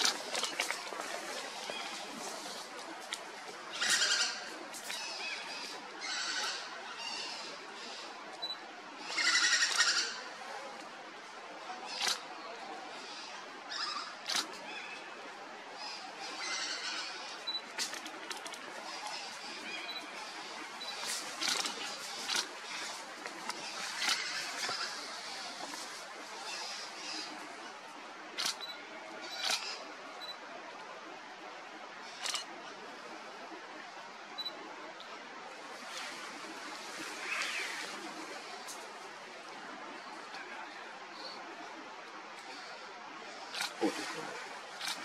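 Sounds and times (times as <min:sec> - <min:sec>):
woodpeckers cackling chatter: 0:00.0 - 0:08.1, 0:09.0 - 0:10.5, 0:11.7 - 0:15.1, 0:15.8 - 0:27.7
steady background hiss: 0:00.0 - 0:45.0.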